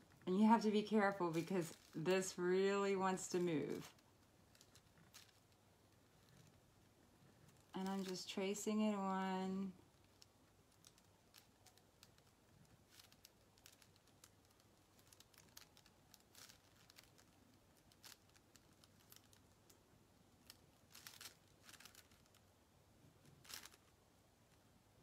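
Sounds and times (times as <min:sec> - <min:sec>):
paper rustling: 0:00.4 - 0:05.6, 0:23.3 - 0:23.9.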